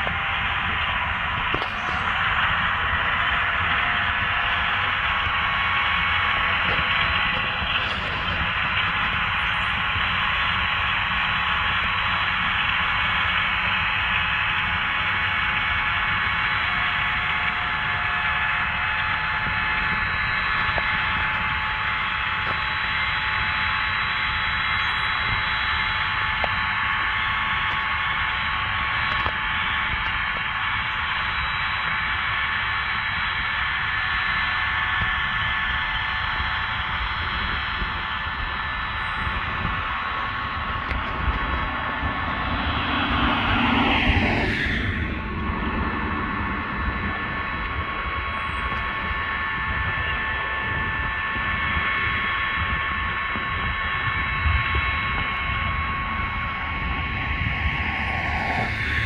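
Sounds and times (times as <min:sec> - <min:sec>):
tractor engine rumbling: 0:00.0 - 0:12.4, 0:38.4 - 0:49.2
faint whine tones: 0:00.0 - 0:59.0.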